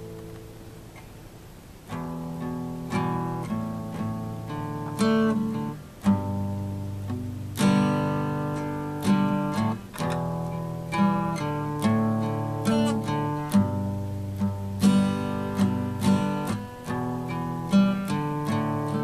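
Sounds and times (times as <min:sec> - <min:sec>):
acoustic guitar strumming: 0:00.0 - 0:19.0.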